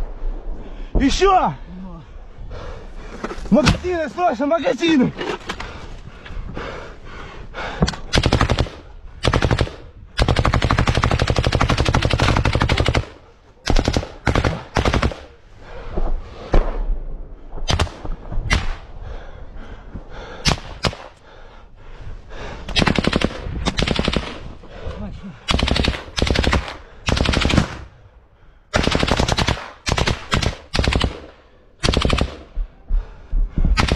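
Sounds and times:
automatic rifle fire: 28.8s - 32.5s.

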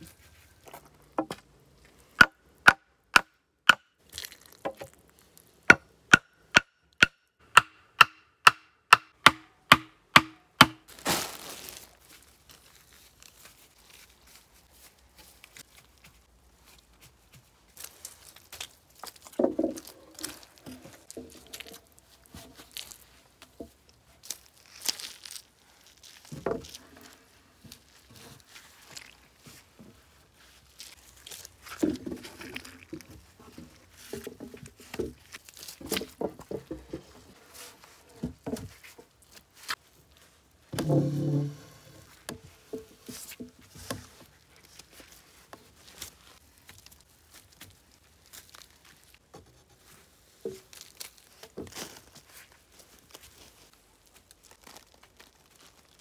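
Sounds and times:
moss tearing: 10.9s - 16.0s, 24.2s - 29.4s, 30.6s - 33.1s, 35.2s - 36.1s, 44.4s - 49.2s, 50.5s - 56.0s.

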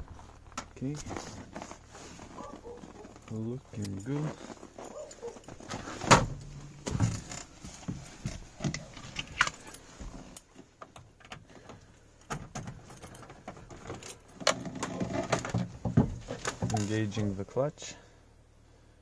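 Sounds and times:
car keys jangling: 2.4s - 5.7s.

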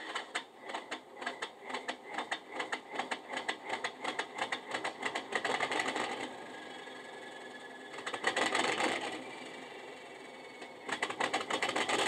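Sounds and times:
diesel engine starting through small speaker: 0.0s - 12.0s.

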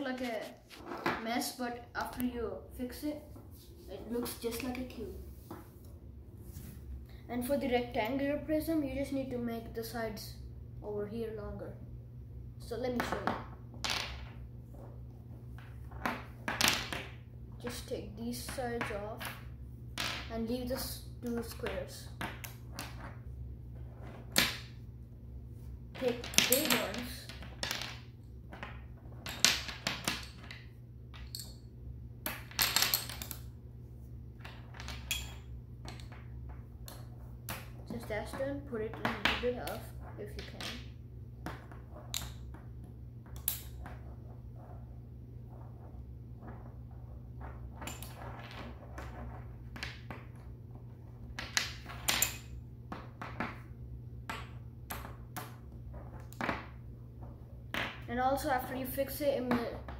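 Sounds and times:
magnetic sticks and balls clattering: 25.9s - 31.7s, 32.3s - 33.6s, 34.3s - 59.9s
magnetic sticks snapping onto balls: 43.3s - 43.8s.

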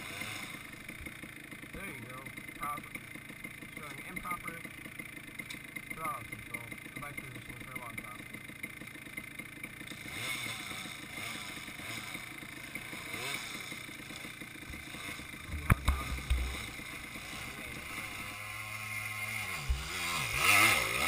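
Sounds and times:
dirt bike engine revving: 0.0s - 21.0s
sharp knock with low thumps: 15.4s - 16.8s, 19.5s - 20.4s.

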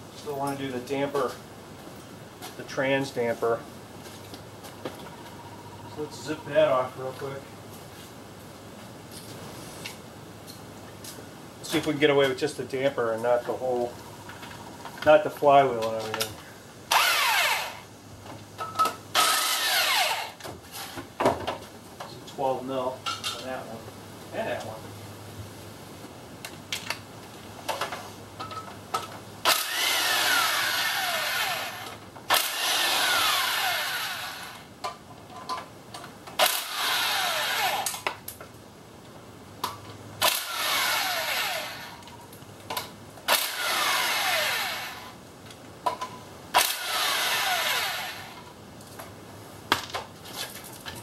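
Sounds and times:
impact wrench whining: 16.9s - 17.9s, 19.1s - 21.0s, 29.4s - 34.7s, 36.4s - 38.0s, 40.2s - 42.0s, 43.3s - 45.2s, 46.6s - 48.4s.

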